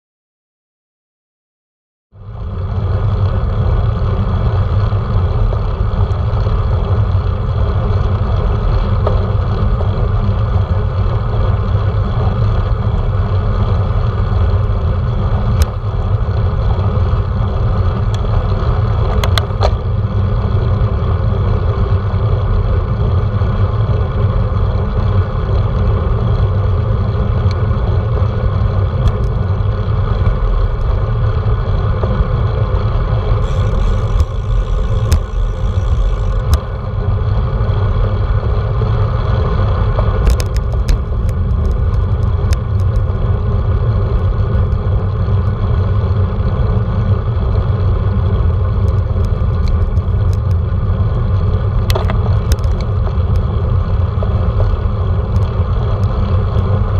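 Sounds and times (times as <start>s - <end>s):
sharp clicks: 33.4s - 36.7s.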